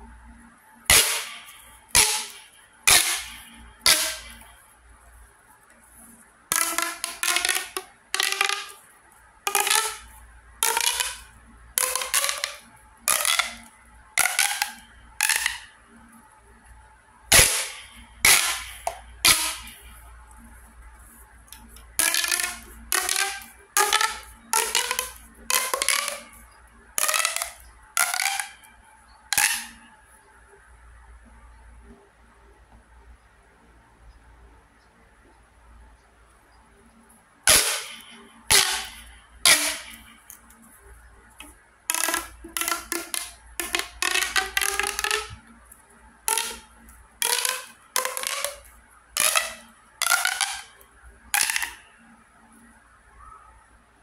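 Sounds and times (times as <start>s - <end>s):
plastic pop tube popping: 0.9s - 4.6s, 6.5s - 16.1s, 17.3s - 20.1s, 21.5s - 28.7s, 29.3s - 29.9s, 37.5s - 40.7s, 41.3s - 51.8s.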